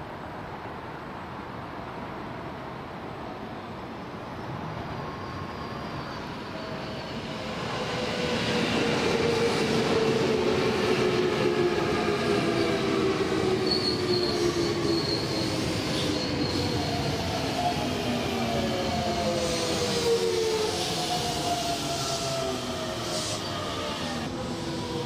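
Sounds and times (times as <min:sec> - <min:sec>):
high wheel squeal: 0:13.6 - 0:17.4.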